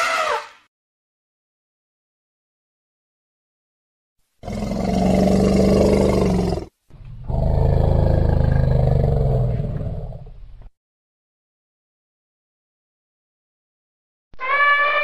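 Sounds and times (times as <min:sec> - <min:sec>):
big cat roaring: 0:04.4 - 0:10.3.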